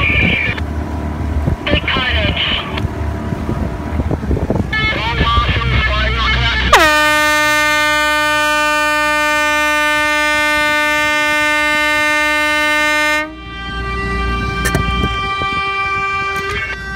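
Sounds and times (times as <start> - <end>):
air horn blast: 4.7 - 16.9
fainter higher horn tone: 4.7 - 16.9.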